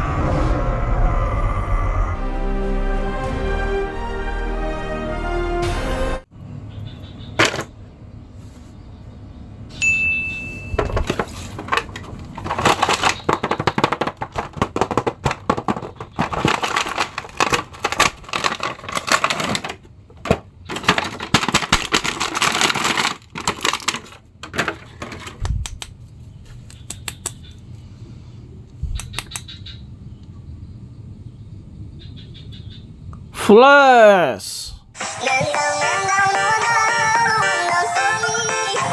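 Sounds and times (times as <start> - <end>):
plastic packaging crinkling: 11.1 - 19.8, 20.7 - 24.8.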